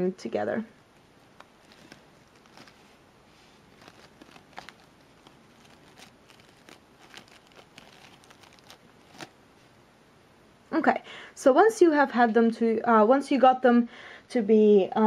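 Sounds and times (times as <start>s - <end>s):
fabric flower crinkling: 1.1s - 9.7s.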